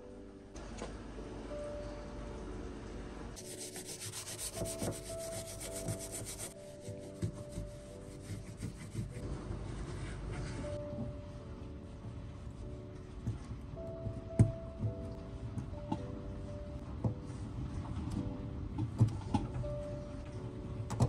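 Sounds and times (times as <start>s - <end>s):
brush scrubbing metal hob: 3.4s - 9.2s
cloth rubbing steel: 3.4s - 10.8s.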